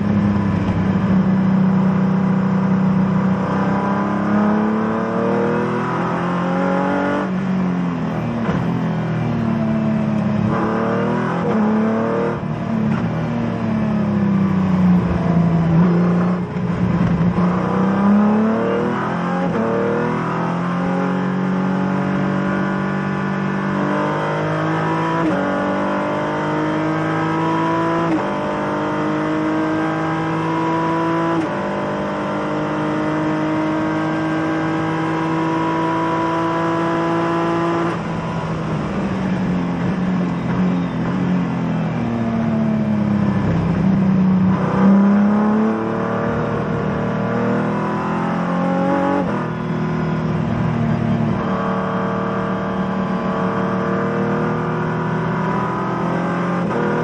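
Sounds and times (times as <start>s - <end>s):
race car engine shifting gears: 8.2s - 8.9s, 10.0s - 13.6s, 14.8s - 20.9s, 21.9s - 41.8s.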